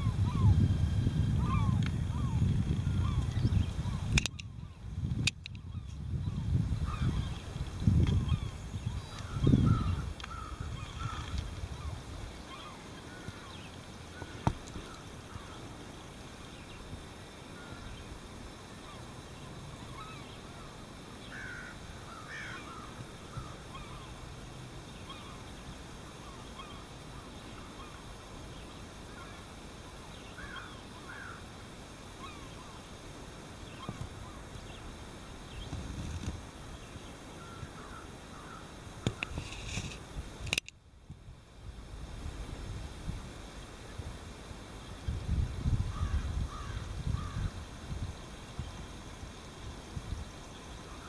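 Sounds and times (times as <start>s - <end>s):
birds calling: 0.0s - 33.0s, 33.6s - 39.5s, 45.9s - 47.5s
steady background hiss: 0.0s - 51.0s
sharp click: 4.1s - 4.5s, 5.2s - 5.6s, 39.0s - 40.8s.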